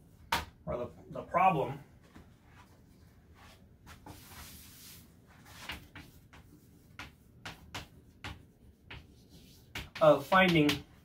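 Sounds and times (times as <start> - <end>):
chalk tapping and scratching on chalkboard: 3.4 - 11.0.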